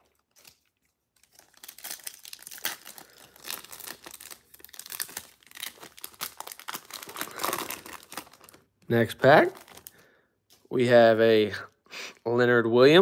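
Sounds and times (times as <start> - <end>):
foil wrapper crinkling and tearing: 0.0 - 10.0.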